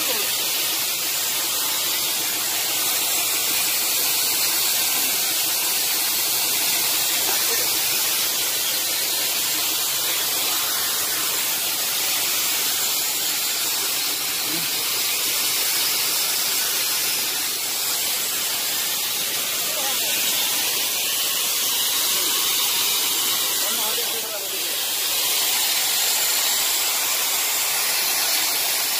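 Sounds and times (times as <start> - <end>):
steady hiss: 0.0 - 28.9.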